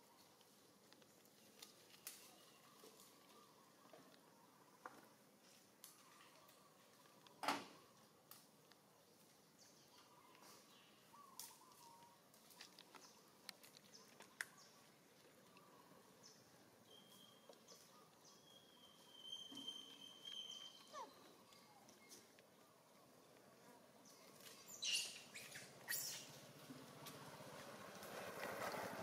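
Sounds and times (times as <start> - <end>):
faint high steady whistle: 18.6 - 20.9.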